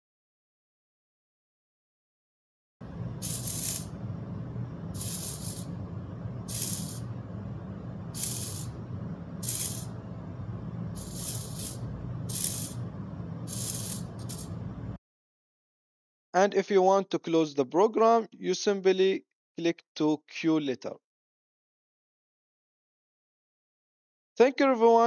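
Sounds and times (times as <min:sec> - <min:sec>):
steady low hum: 0:02.8 - 0:15.0
servo whirring: 0:02.9 - 0:04.0, 0:04.8 - 0:07.2, 0:07.9 - 0:15.0.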